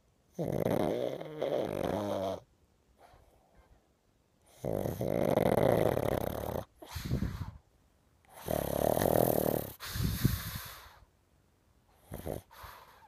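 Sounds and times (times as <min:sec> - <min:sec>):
dog snoring: 0:00.3 - 0:03.3, 0:04.4 - 0:07.5, 0:08.3 - 0:11.0, 0:11.9 - 0:13.0
dog snorting: 0:00.4 - 0:02.4, 0:04.5 - 0:07.5, 0:08.3 - 0:11.0, 0:12.0 - 0:13.0.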